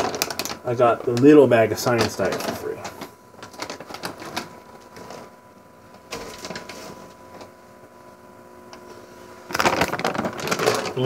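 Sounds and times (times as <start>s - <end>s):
plastic bag crackling: 0.0s - 5.3s, 9.5s - 11.0s
packages rustling: 0.0s - 5.4s, 6.1s - 7.1s, 9.5s - 11.0s.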